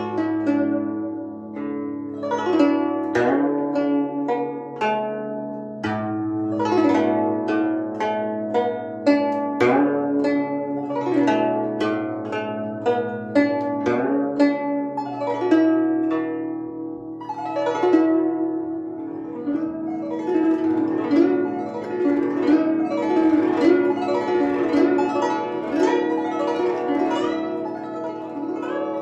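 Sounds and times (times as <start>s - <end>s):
plucked zither: 0.0s - 29.0s.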